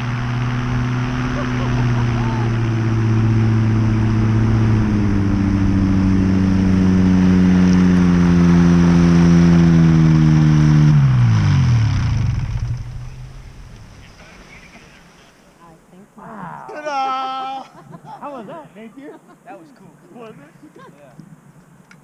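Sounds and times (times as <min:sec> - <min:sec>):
engine and propeller droning: 0:00.0 - 0:15.2.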